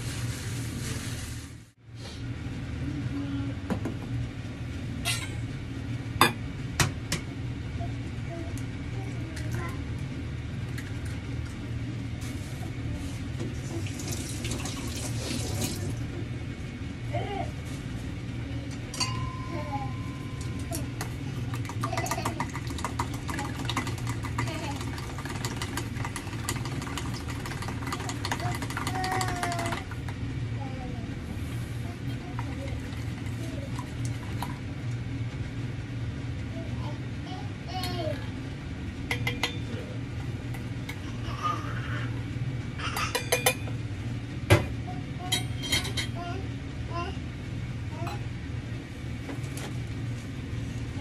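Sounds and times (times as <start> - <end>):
steady low hum: 0.0 - 51.0
chopsticks clinking on steel bowls: 18.9 - 20.7.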